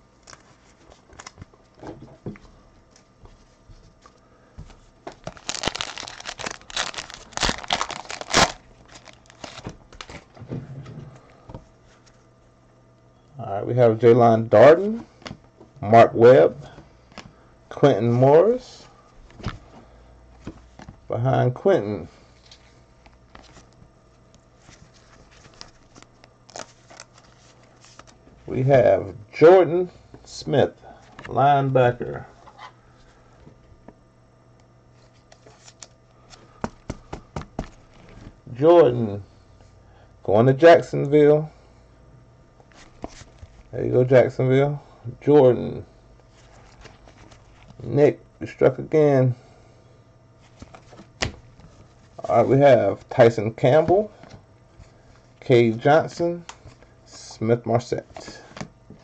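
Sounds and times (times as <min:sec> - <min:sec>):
trading cards rustling and clicking: 0:05.0 - 0:10.3, 0:24.7 - 0:28.2
foil wrapper tearing and crinkling: 0:05.1 - 0:10.2.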